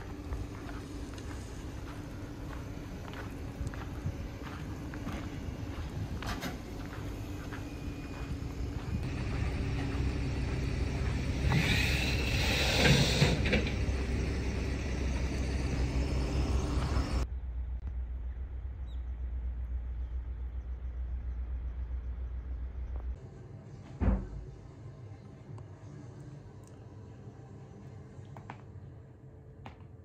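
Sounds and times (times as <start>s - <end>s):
road vehicle rumble: 0.0s - 25.2s
hiss: 11.4s - 13.6s.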